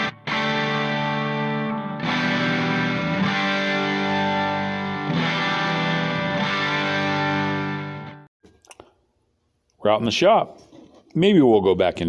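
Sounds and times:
distorted electric guitar chords: 0.0 - 8.3.

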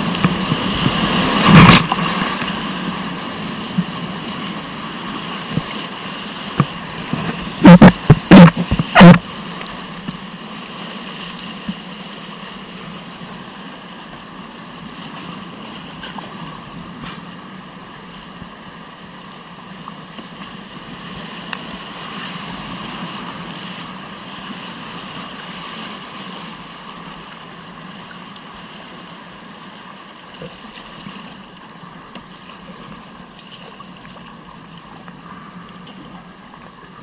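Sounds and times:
whitewater rushing: 0.0 - 14.6.

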